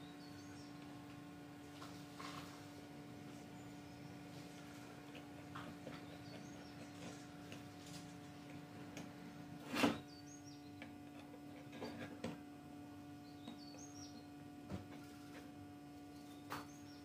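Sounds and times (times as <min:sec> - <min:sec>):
bird chirping: 0:00.0 - 0:00.9, 0:05.8 - 0:07.2, 0:10.0 - 0:10.9, 0:13.2 - 0:14.4, 0:16.1 - 0:17.0
steady low hum: 0:00.0 - 0:17.0.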